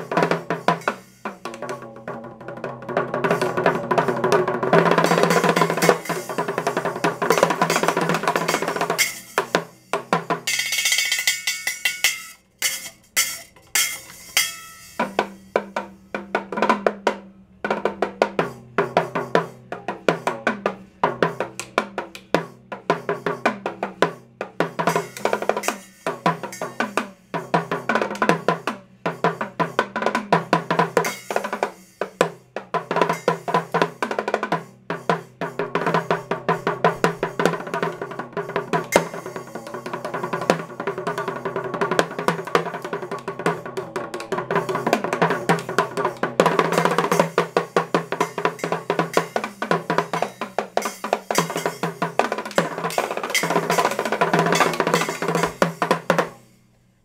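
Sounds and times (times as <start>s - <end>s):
cymbal ringing: 0.0s - 1.6s, 3.3s - 22.2s, 23.9s - 56.7s
drum rolls on small toms: 0.0s - 56.5s.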